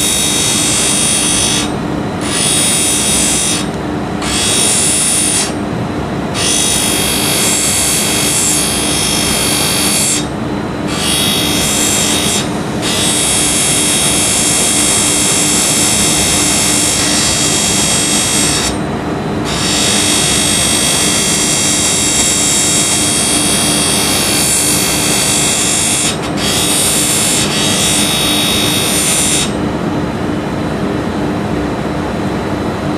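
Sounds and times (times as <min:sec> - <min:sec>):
stone grinding hiss: 0:00.0 - 0:05.6, 0:06.4 - 0:10.3, 0:10.9 - 0:18.8, 0:19.5 - 0:29.5
grinding wheel motor hum: 0:00.0 - 0:05.7, 0:06.3 - 0:29.6.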